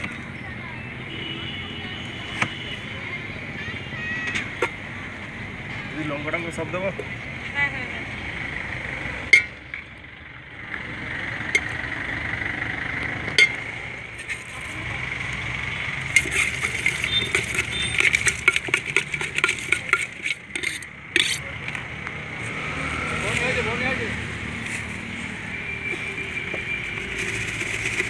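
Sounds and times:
fruit pieces clinking in steel tin: 0:16.2 - 0:21.4.

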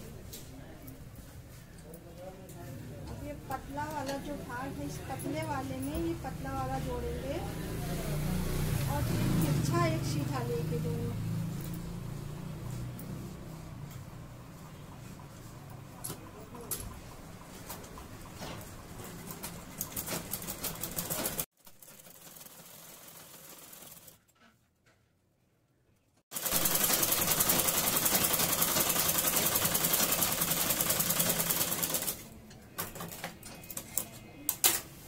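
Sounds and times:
sewing machine stitching: 0:19.2 - 0:24.2, 0:26.3 - 0:32.2.

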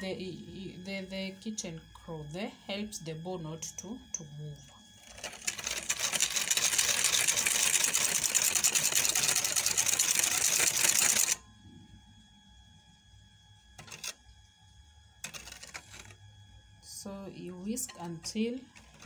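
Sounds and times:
whisk clattering in a bowl: 0:05.1 - 0:11.4.

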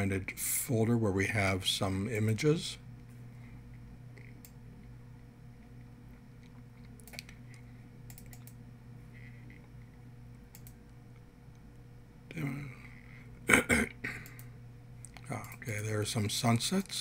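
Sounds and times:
low electrical hum: 0:00.0 - 0:17.0
computer mouse clicks: 0:07.0 - 0:08.6, 0:10.5 - 0:10.9.

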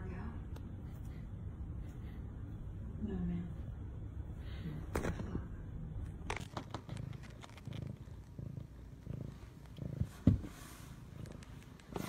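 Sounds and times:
cat purring: 0:00.3 - 0:12.0.

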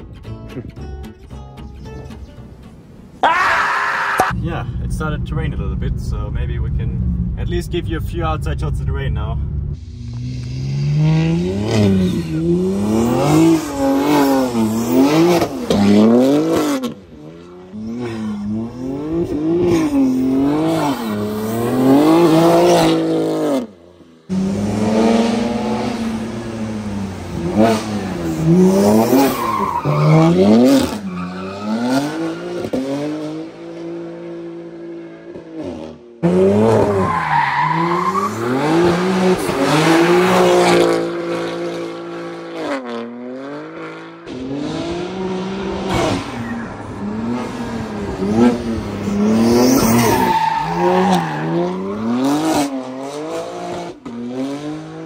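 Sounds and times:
car engine revving: 0:04.3 - 0:55.0
tyre squeal: 0:49.6 - 0:52.0.

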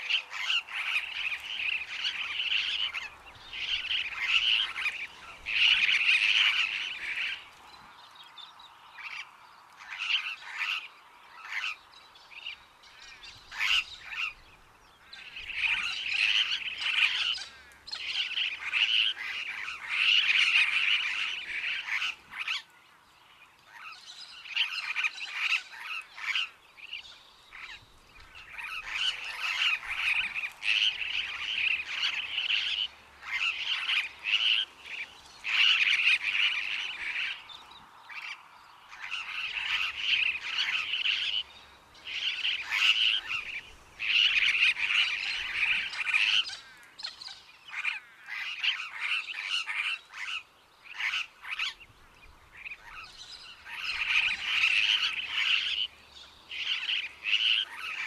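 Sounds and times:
parrots screeching and chattering: 0:00.1 - 0:07.4, 0:15.6 - 0:22.6, 0:28.4 - 0:37.4, 0:38.2 - 0:41.4, 0:42.1 - 0:46.8, 0:56.5 - 0:58.0.

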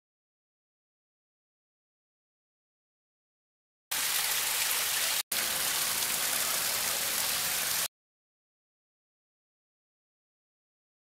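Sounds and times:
waterfall cascading over rocks: 0:03.9 - 0:07.9.

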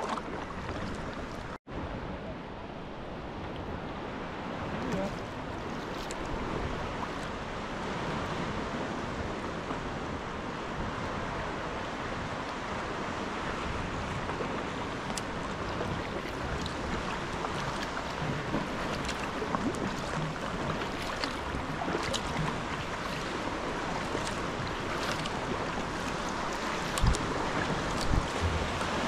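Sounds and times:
sea water rushing: 0:00.0 - 0:29.0
wind: 0:00.0 - 0:29.0
faint water ticks: 0:04.8 - 0:07.4, 0:15.0 - 0:29.0.

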